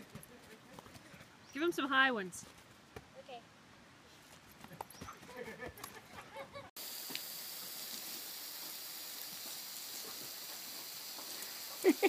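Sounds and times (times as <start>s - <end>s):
lawn sprinkler hissing: 6.8s - 12.0s.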